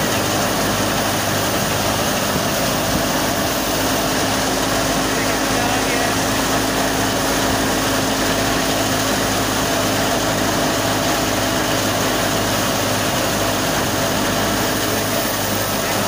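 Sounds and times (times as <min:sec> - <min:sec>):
threshing machine running: 0:00.0 - 0:16.0.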